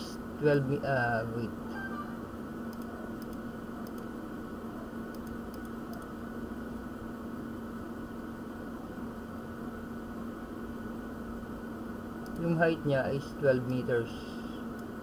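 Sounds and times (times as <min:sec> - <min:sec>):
low steady hum: 0:00.0 - 0:15.0
computer mouse clicks: 0:02.7 - 0:04.1, 0:05.1 - 0:06.1, 0:12.2 - 0:12.5.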